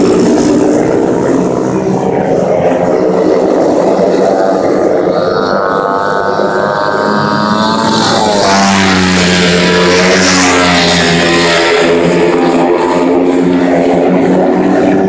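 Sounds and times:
racing motorcycle engines: 0:00.0 - 0:15.0.

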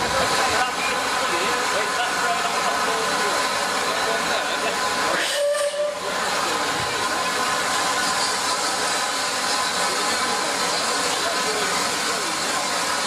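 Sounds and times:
steam locomotive blowing off steam: 0:00.0 - 0:13.0.

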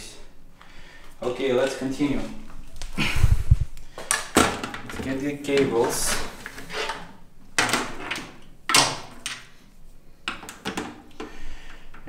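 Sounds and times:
cable scrapes: 0:05.9 - 0:07.2.

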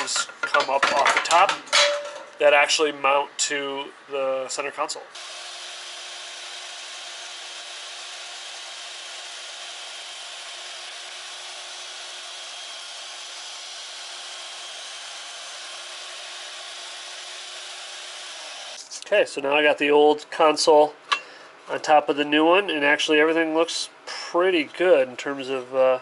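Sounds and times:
band saw cutting plastic: 0:05.2 - 0:18.8.

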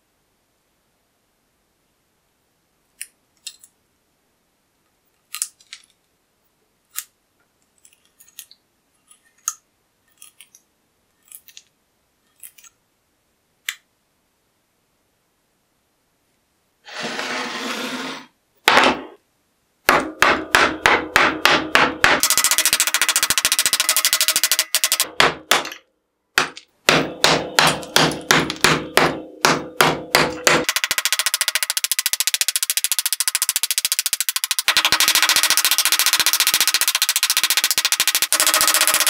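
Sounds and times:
rough scrape: 0:16.8 - 0:18.4
hammer striking metal blade: 0:26.4 - 0:30.7.

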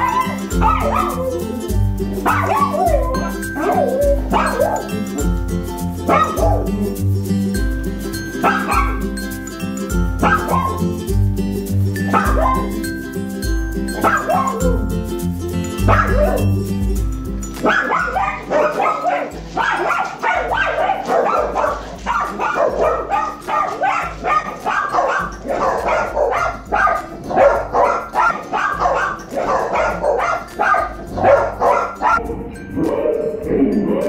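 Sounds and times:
dogs barking excitedly: 0:00.0 - 0:05.4, 0:06.0 - 0:07.0, 0:08.4 - 0:09.2, 0:10.2 - 0:11.0, 0:12.0 - 0:13.0, 0:13.9 - 0:14.8, 0:15.8 - 0:16.6, 0:17.5 - 0:32.3.

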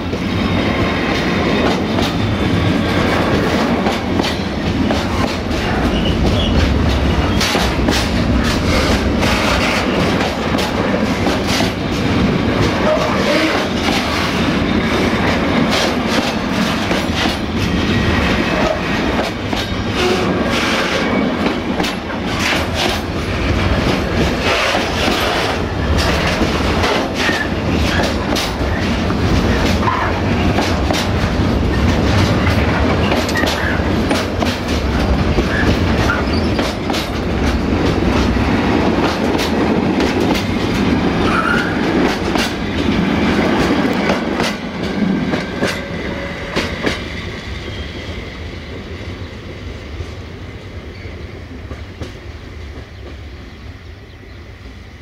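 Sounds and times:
train wheels clattering over rail joints: 0:00.0 - 0:47.1.

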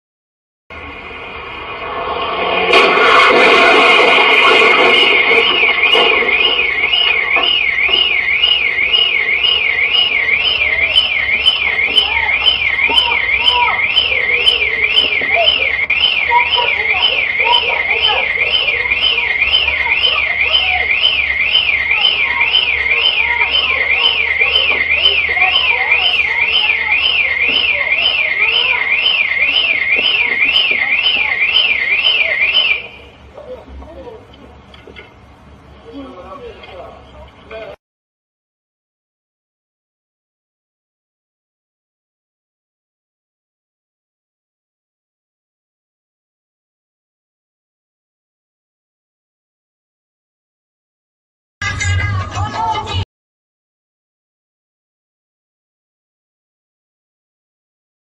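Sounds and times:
car alarm wailing: 0:02.7 - 0:33.2.

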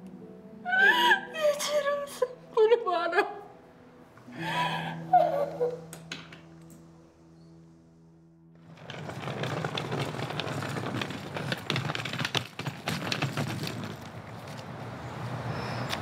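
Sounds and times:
dense clattering with rapid clicks: 0:08.6 - 0:14.6.

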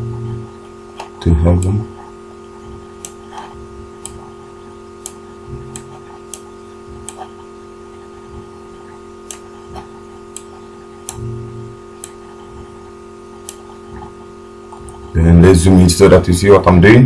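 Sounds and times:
steady electrical hum: 0:00.0 - 0:17.0
computer mouse clicking: 0:00.9 - 0:01.8, 0:05.0 - 0:07.4, 0:09.2 - 0:11.2, 0:12.0 - 0:12.5, 0:13.4 - 0:15.1.

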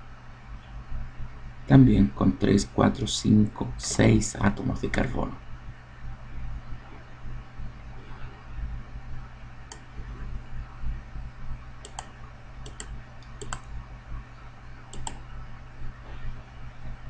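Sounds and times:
low steady hum: 0:00.0 - 0:17.0
mouse button clicking: 0:11.8 - 0:13.6, 0:14.9 - 0:15.2.

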